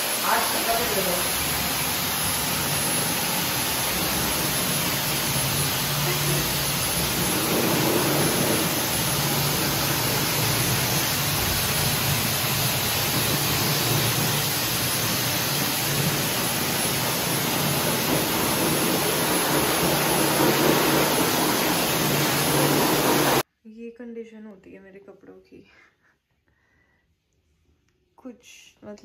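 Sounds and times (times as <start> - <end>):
pet dryer blowing air: 0.0 - 23.4.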